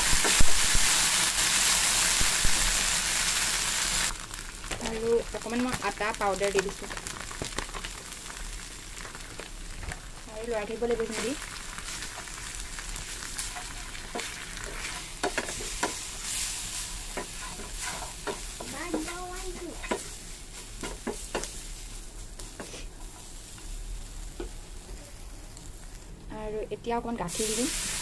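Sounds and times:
frying sizzle: 0.0s - 28.0s
spatula scraping a pan: 11.8s - 21.9s.

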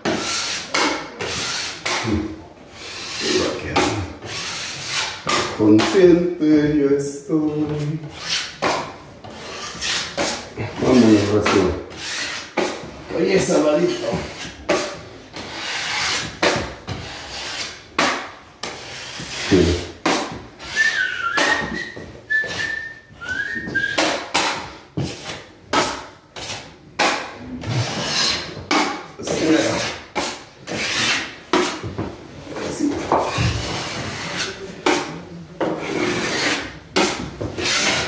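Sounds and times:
sandpaper rasping on drywall: 0.0s - 6.1s, 7.8s - 22.7s, 23.6s - 31.9s, 32.6s - 38.0s
person whistling: 20.7s - 24.2s.

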